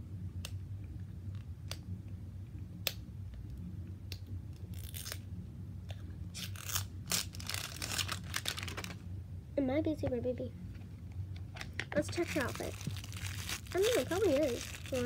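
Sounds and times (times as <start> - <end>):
plastic wrap crinkling and tearing: 4.7 - 5.2, 6.3 - 9.0, 12.0 - 15.0.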